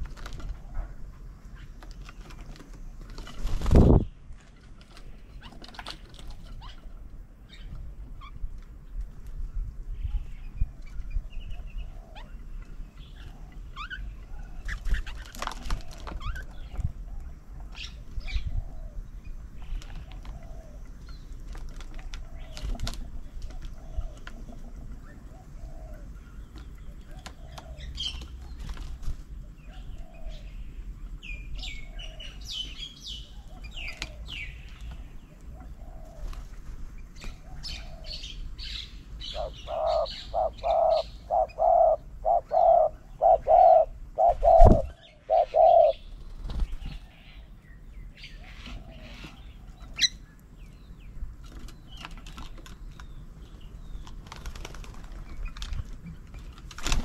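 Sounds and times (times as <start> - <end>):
birds chirping and calling: 0.0 - 57.0
soft repeated bird call: 37.2 - 47.6.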